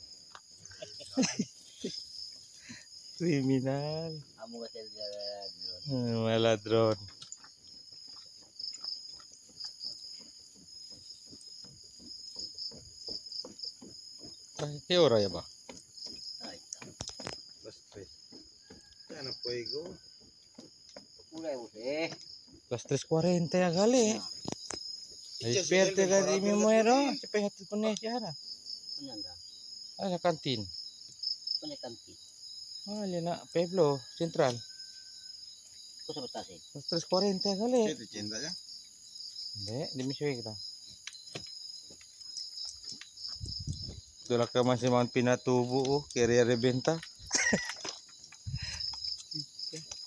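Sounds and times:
crickets chirping: 0.0s - 50.0s
voices talking: 0.7s - 7.4s, 21.3s - 28.4s.

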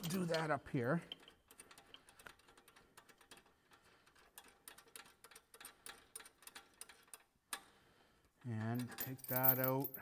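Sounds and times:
metal chain links clinking: 0.0s - 3.5s, 8.6s - 10.0s.

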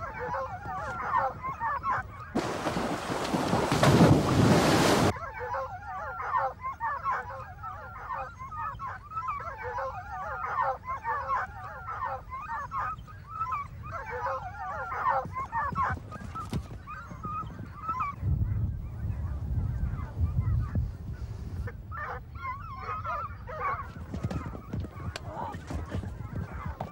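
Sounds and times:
hounds baying: 0.0s - 4.3s, 5.0s - 20.8s, 21.6s - 26.9s
wind noise on microphone: 0.0s - 5.1s, 15.2s - 26.9s.

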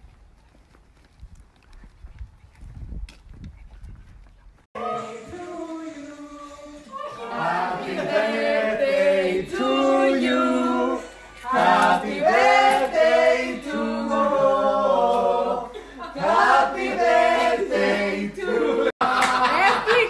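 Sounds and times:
people singing unaccompanied: 4.7s - 19.5s.

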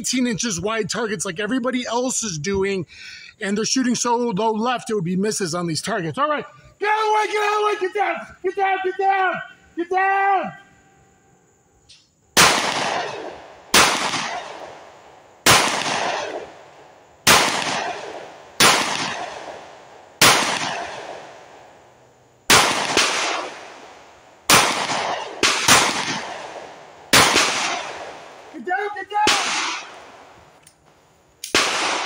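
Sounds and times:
pistol shots with echo: 12.4s - 21.6s, 22.5s - 28.5s, 29.2s - 30.4s, 31.5s - 32.0s.

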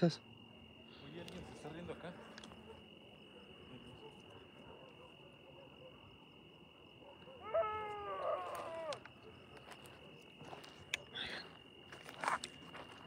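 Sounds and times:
crickets chirping: 0.0s - 13.0s
drawn-out falling call: 7.4s - 9.1s.

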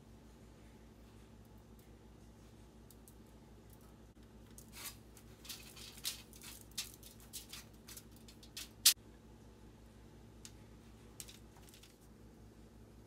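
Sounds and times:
hand rubbing fish on foil: 4.6s - 9.0s.

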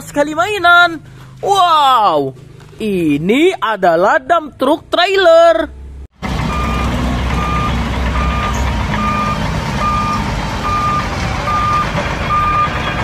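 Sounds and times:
truck engines running: 0.0s - 3.6s, 5.7s - 13.0s
truck back-up alarm beeping: 6.3s - 13.0s.

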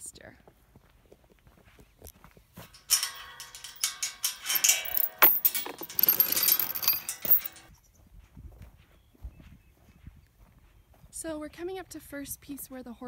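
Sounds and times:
chain rattling against metal gate: 2.6s - 7.7s.

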